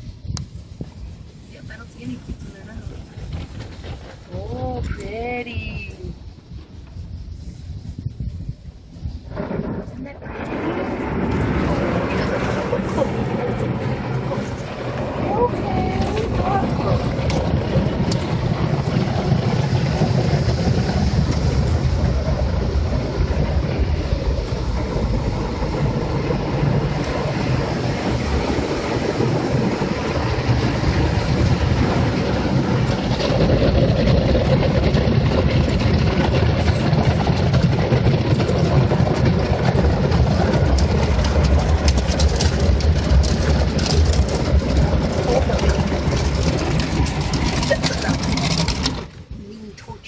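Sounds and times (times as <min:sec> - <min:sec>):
car wash machinery rushing: 0:10.2 - 0:49.4.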